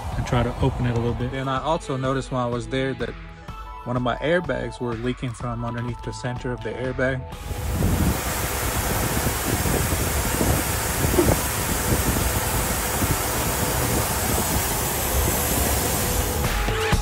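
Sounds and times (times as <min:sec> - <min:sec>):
rushing hiss: 0:07.4 - 0:17.0.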